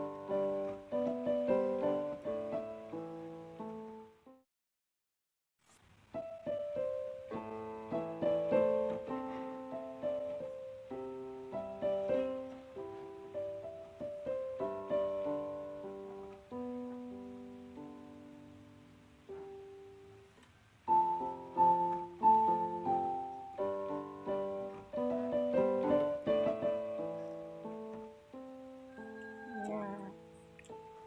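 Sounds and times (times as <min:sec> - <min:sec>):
gentle piano melody: 0:00.0 - 0:04.4, 0:06.1 - 0:31.0.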